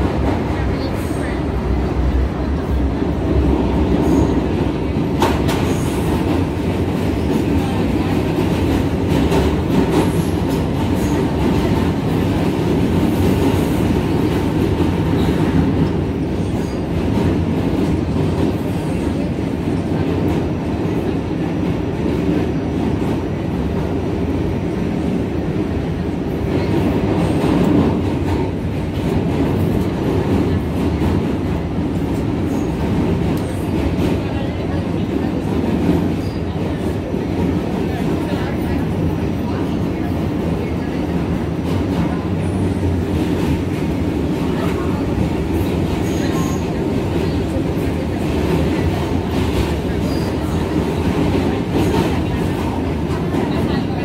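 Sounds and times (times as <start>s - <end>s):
train wheels running on rails: 0.0s - 54.0s.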